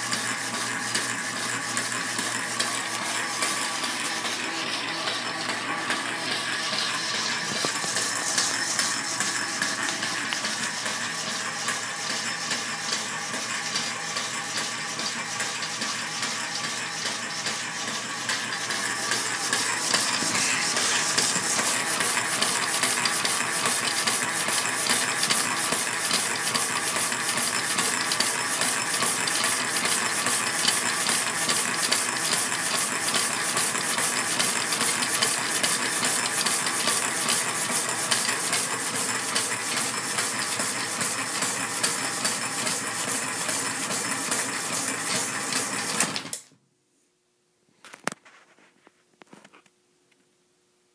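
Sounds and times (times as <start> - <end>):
power hacksaw sawing metal bar: 18.6 - 26.7.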